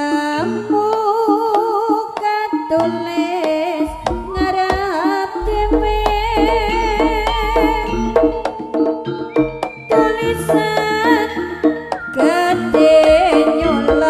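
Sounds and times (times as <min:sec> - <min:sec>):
wavering melody line: 0:00.8 - 0:14.0
hand drum strokes: 0:04.0 - 0:11.3
deep steady low tone: 0:05.4 - 0:08.7.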